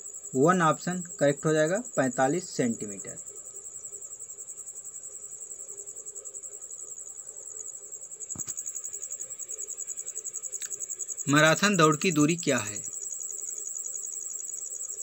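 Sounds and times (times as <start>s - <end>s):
cricket chirping: 0.0s - 15.0s
sharp click: 8.3s - 8.7s.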